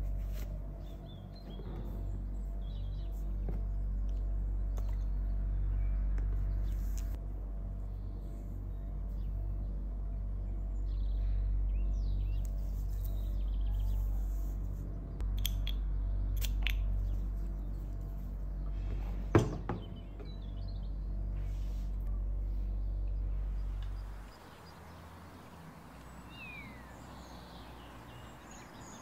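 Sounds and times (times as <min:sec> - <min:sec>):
steady low hum: 0:00.0 - 0:29.0
faint bird chirps: 0:10.8 - 0:14.4.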